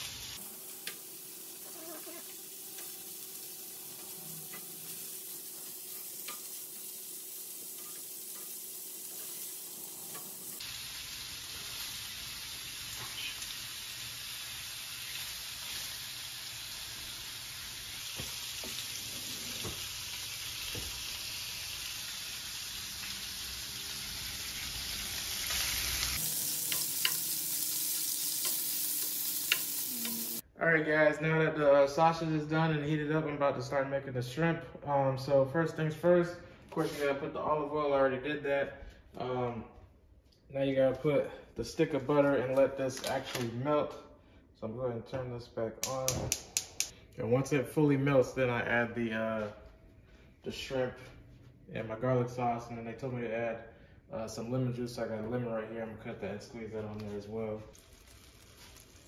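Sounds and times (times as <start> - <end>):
sausage sizzling in a frying pan: 0.0 - 30.5, 57.7 - 59.0
spatula clicking against pan: 45.8 - 46.9.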